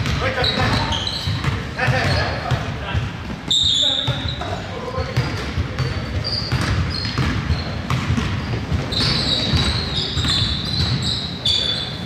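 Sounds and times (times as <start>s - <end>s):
shoe squeaks: 0.0s - 2.4s, 3.4s - 12.0s
basketball bouncing on hardwood: 0.0s - 2.7s, 5.2s - 11.1s.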